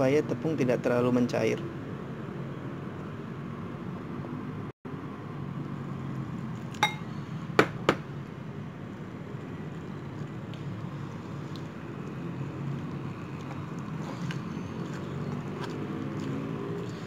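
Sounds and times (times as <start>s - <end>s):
low steady hum: 6.6s - 7.4s
tableware clinks: 6.8s - 7.1s.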